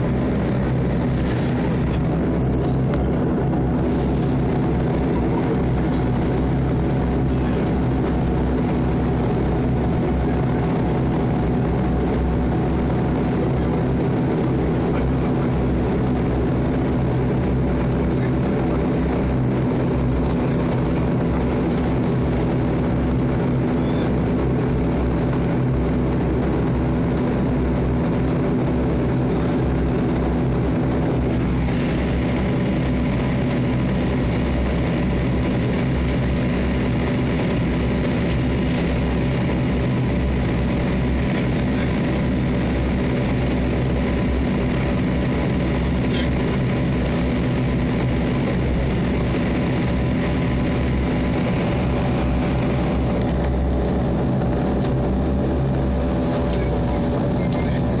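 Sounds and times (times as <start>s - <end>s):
turboprop engines droning: 0.0s - 58.0s
tyre and airframe rumble: 30.9s - 58.0s.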